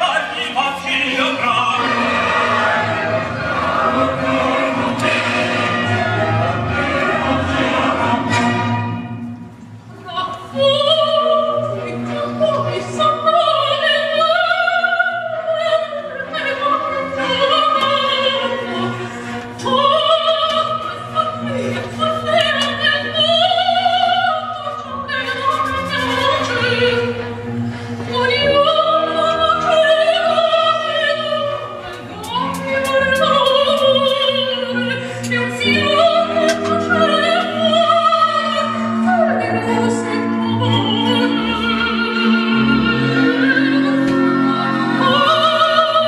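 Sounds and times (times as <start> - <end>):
sustained orchestral strings: 0.0 - 14.3
operatic singing: 0.0 - 46.0.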